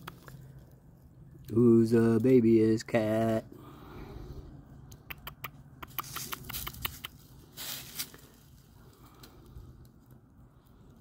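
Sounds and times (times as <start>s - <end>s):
dry leaves crackling underfoot: 5.8s - 11.0s
leaves rustling: 5.9s - 11.0s.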